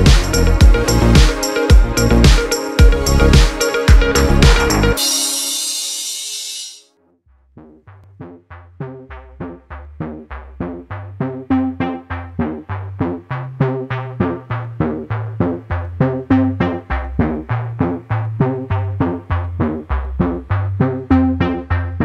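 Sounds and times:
plucked notes over a bass line: 0:00.0 - 0:05.1, 0:07.6 - 0:22.0.

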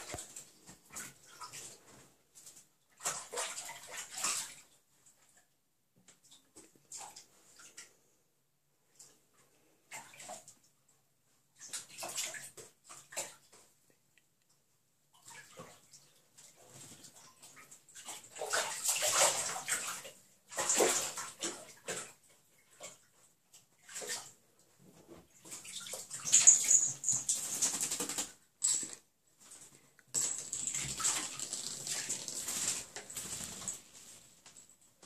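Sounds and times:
animal splashing in bathtub water: 0:00.0 - 0:04.8, 0:09.9 - 0:10.6, 0:11.6 - 0:13.7, 0:15.1 - 0:28.5, 0:30.6 - 0:34.3.

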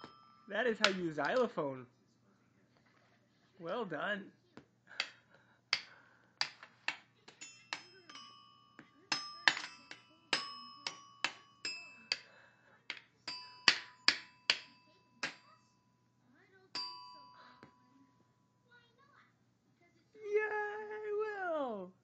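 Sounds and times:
xylophone struck with mallet: 0:00.0 - 0:01.1, 0:13.3 - 0:15.4.

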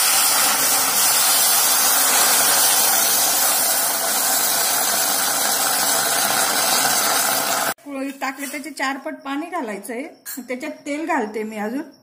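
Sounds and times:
water hissing into hot pot: 0:00.0 - 0:07.8.

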